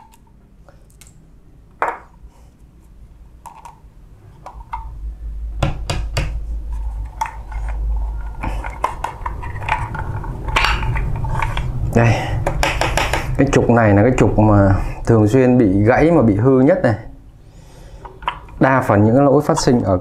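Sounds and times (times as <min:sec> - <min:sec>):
small parts clicking and knocking: 0:06.1 - 0:13.4.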